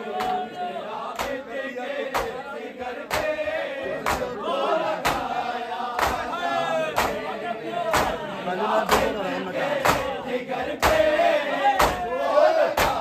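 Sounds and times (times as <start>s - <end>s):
men chanting together: 0.0s - 13.0s
hands beating on chests: 6.0s - 6.3s, 11.8s - 12.1s, 12.8s - 13.0s.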